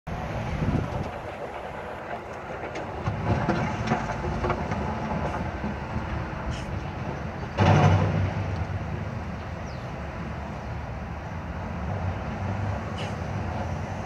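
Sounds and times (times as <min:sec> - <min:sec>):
excavator diesel engine rumbling: 0:00.1 - 0:14.0
metallic clanks and knocks: 0:07.0 - 0:08.8.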